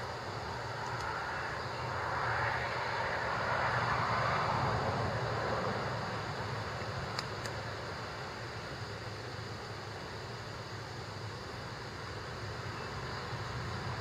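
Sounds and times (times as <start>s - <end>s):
vehicle passing on highway: 0.2s - 8.0s.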